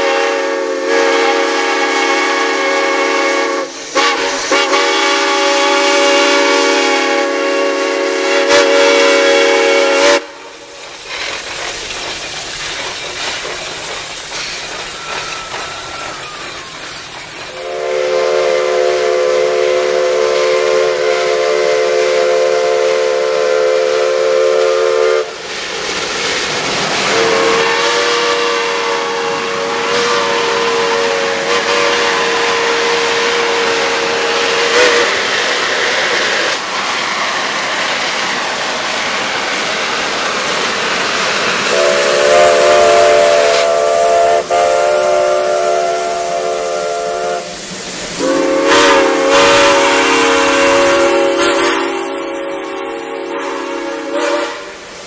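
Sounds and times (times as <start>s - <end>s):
steam whistle blasts: 0.0s - 10.7s, 14.4s - 25.4s, 27.0s - 35.6s, 41.6s - 55.0s
steam hiss: 0.0s - 55.0s.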